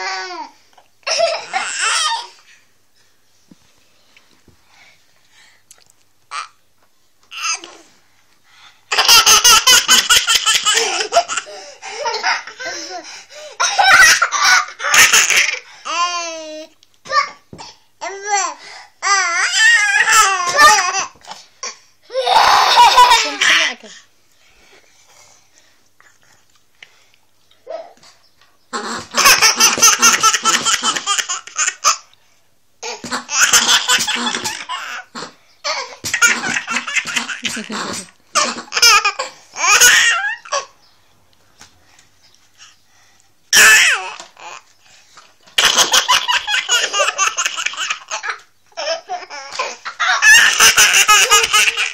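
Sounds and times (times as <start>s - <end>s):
toddler laughing: 8.9s - 16.5s, 22.1s - 23.9s, 28.7s - 32.1s, 32.8s - 35.1s, 35.7s - 40.8s, 45.6s - 51.9s.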